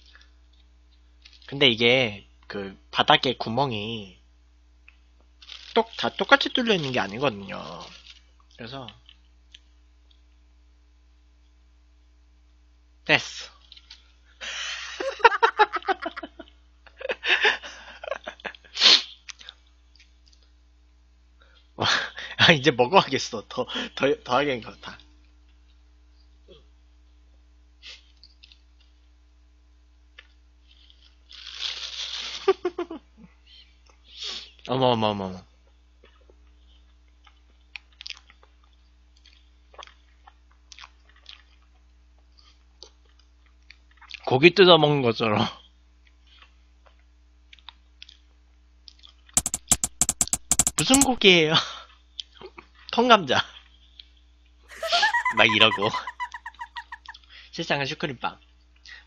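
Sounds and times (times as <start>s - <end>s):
man laughing: 14.9s - 16.4s, 17.0s - 18.5s, 54.7s - 57.2s
faint chewing: 19.0s - 20.6s, 36.0s - 44.3s, 46.0s - 48.2s
wet mouth clicks: 49.4s - 51.2s.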